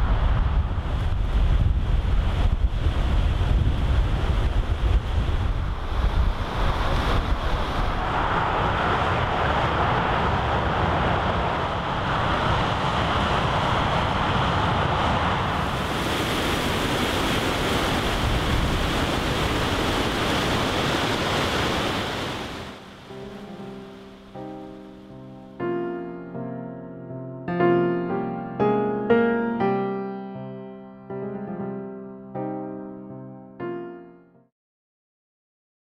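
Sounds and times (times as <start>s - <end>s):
wind buffeting microphone: 0.0s - 25.1s
river rushing under bridge: 4.0s - 25.0s.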